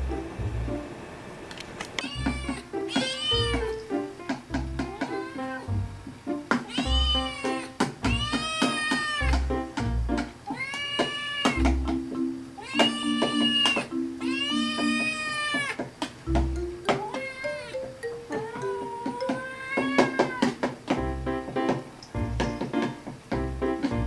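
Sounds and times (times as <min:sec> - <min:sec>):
kitten meowing: 0:02.0 - 0:03.8, 0:04.8 - 0:05.7, 0:06.6 - 0:09.4, 0:10.5 - 0:11.7, 0:12.6 - 0:15.8, 0:16.9 - 0:17.7, 0:18.3 - 0:20.6
music with low beat: 0:11.6 - 0:12.4, 0:16.3 - 0:17.0, 0:20.9 - 0:24.0.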